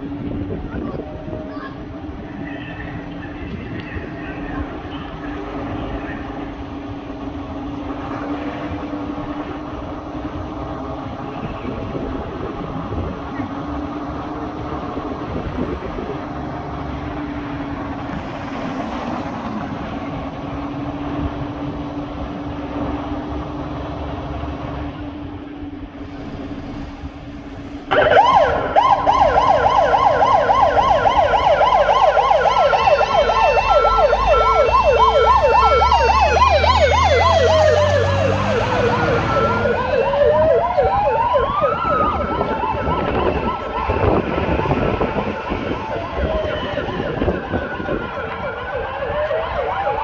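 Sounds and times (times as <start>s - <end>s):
fire engine idling: 0.0s - 18.5s
deep engine rumble: 0.0s - 49.5s
siren wailing: 27.9s - 50.0s
siren yelping: 27.9s - 50.0s.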